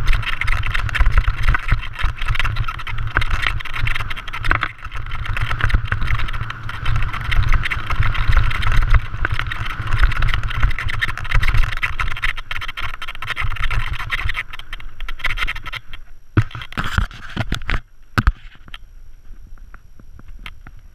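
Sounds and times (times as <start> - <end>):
wind buffeting microphone: 0.0 - 14.8
bike clattering: 0.0 - 17.0
bike tyres crunching over stones: 0.0 - 20.9.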